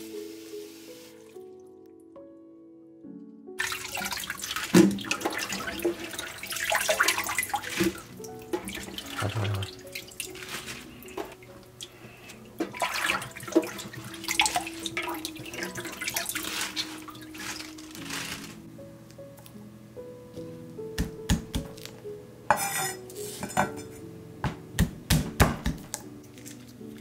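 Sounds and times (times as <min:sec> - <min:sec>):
water splashing and dripping: 0:03.6 - 0:18.4.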